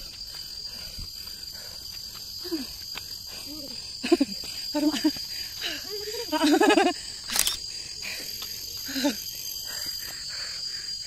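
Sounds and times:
high-pitched insect drone: 0:00.0 - 0:11.0
sharp click: 0:07.3 - 0:07.6.

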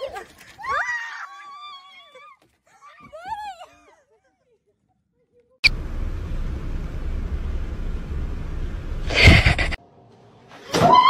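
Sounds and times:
road rumble inside moving car: 0:05.6 - 0:09.8.

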